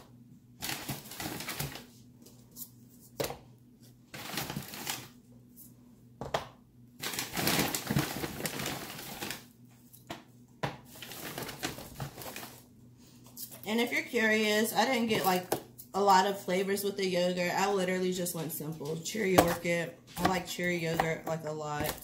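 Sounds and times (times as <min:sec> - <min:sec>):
plastic bags rustling: 0:00.6 - 0:02.0, 0:04.1 - 0:05.2, 0:07.0 - 0:09.6, 0:10.9 - 0:12.7.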